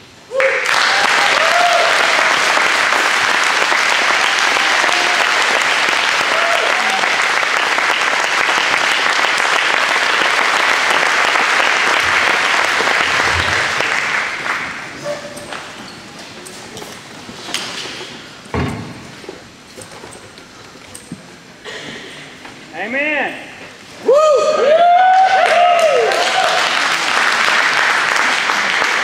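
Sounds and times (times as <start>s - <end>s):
congregation applauding: 0.3s - 15.8s, 24.6s - 29.0s.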